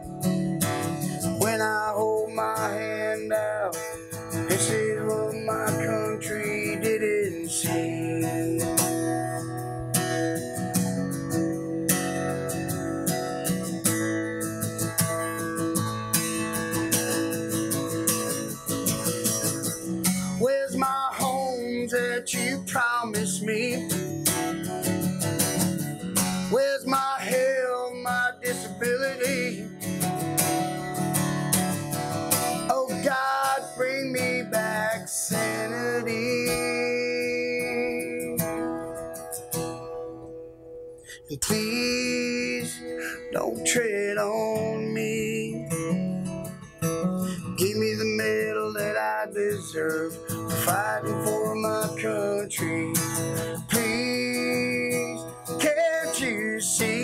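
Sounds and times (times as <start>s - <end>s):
man singing: 0.0s - 9.5s, 19.2s - 24.7s, 26.2s - 30.2s, 32.4s - 39.0s, 41.1s - 46.3s, 47.2s - 57.0s
acoustic guitar strumming: 0.0s - 57.0s.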